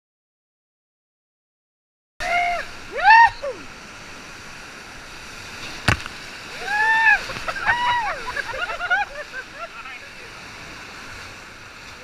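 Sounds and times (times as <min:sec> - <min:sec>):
people yelling: 0:02.2 - 0:03.7, 0:06.5 - 0:08.4
whitewater rapids rushing: 0:02.2 - 0:12.0
sharp knock: 0:05.9 - 0:06.2.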